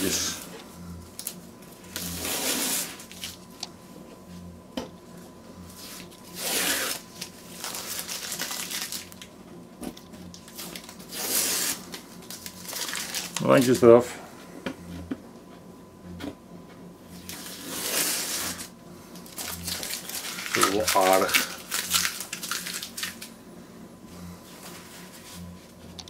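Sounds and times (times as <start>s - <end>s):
masking tape peeling off paper: 5.8s - 9.3s, 10.5s - 13.7s, 19.3s - 23.3s.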